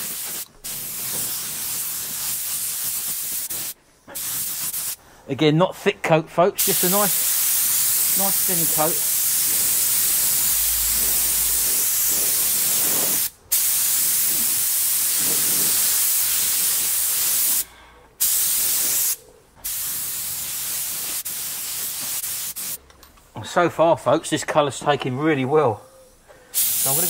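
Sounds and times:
spray gun hissing: 0.0s - 5.0s, 6.6s - 22.8s, 26.5s - 27.0s.

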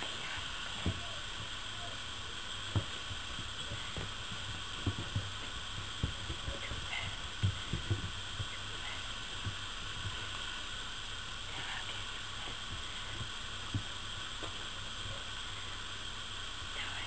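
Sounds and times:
steady hiss: 0.0s - 17.0s
puppies scuffling soft thumps: 0.1s - 1.7s, 2.4s - 10.6s.

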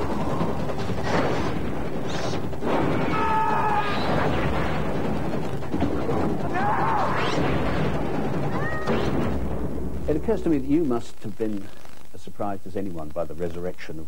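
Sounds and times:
dense steady rumble: 7.4s - 14.0s.

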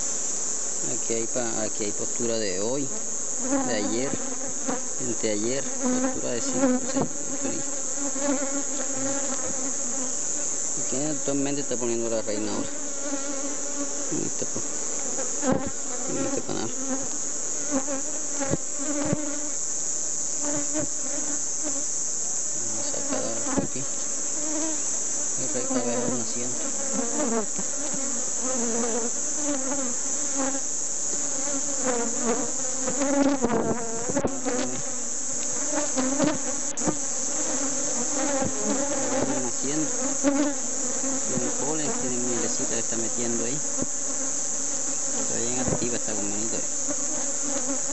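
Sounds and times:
bees buzzing: 0.0s - 47.9s
hive tool clicking on wooden frames: 3.4s - 4.8s, 5.6s - 9.9s, 14.6s - 17.1s, 17.7s - 19.5s, 26.8s - 42.0s, 45.0s - 45.9s.

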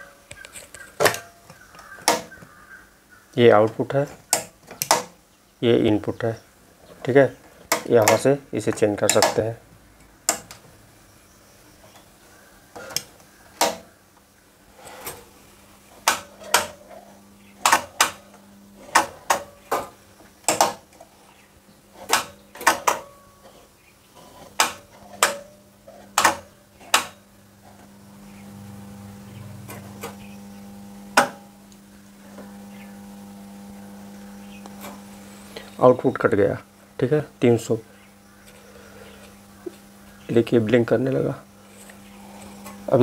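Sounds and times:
transformer hum: 0.0s - 43.0s
relays clicking: 3.4s - 5.2s, 7.0s - 10.7s, 15.9s - 21.1s, 22.0s - 23.6s, 24.2s - 27.9s.

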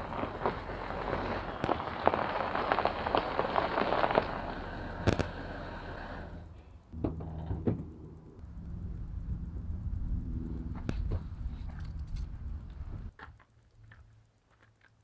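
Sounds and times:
tyres crunching over gravel: 0.0s - 6.3s
engine idling low: 0.0s - 13.1s.

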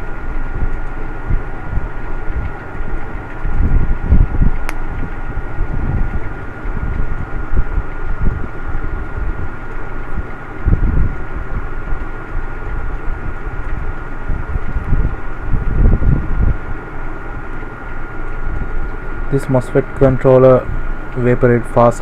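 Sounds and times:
electric fan whirring: 0.0s - 22.0s
sharp click: 4.6s - 4.9s.

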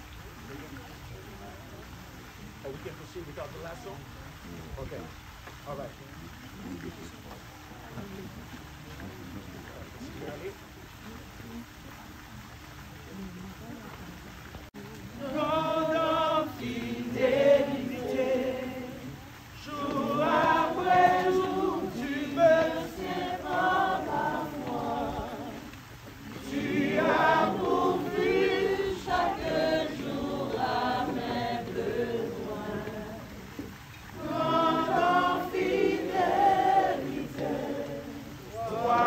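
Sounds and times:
group singing without instruments: 15.0s - 39.0s.

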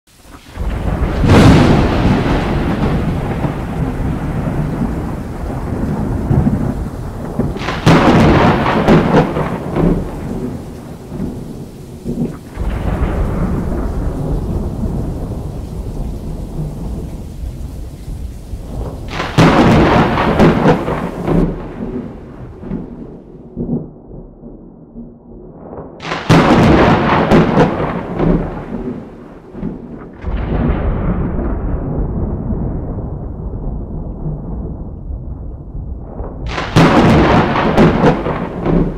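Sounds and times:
thunder claps rolling into rumble: 0.4s - 38.9s.

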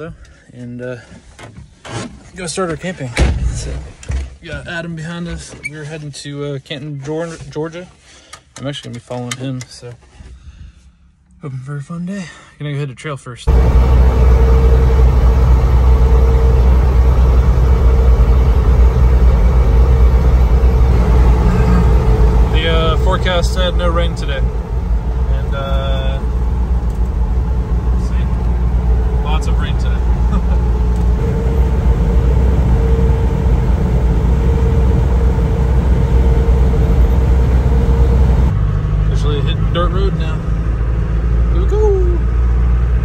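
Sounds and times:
car engine and road drone: 13.4s - 43.0s
steady whine: 13.5s - 40.5s.

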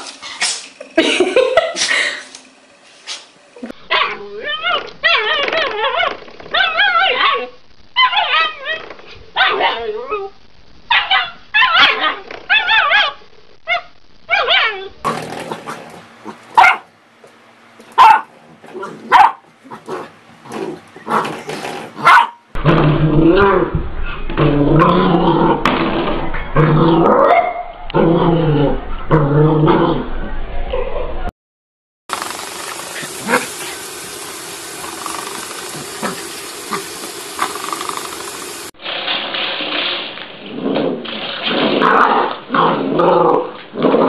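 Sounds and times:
puppy barking: 3.9s - 8.8s, 9.4s - 9.9s, 10.9s - 14.9s, 16.3s - 16.9s, 17.9s - 20.0s, 22.0s - 22.5s
steady hiss: 32.1s - 38.7s.

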